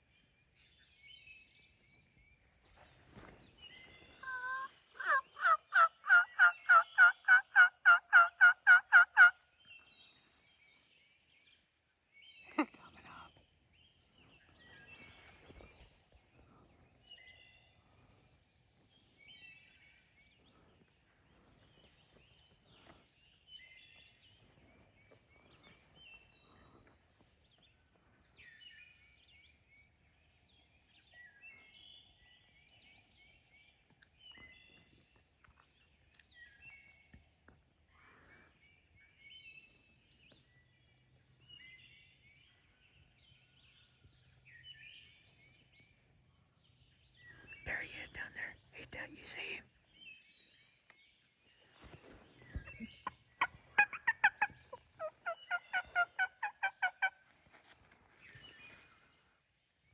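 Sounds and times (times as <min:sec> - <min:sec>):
songbirds chirping: 0:00.0 - 0:59.9
faint rustles: 0:02.6 - 0:04.2, 0:14.1 - 0:17.0, 0:51.4 - 0:53.8.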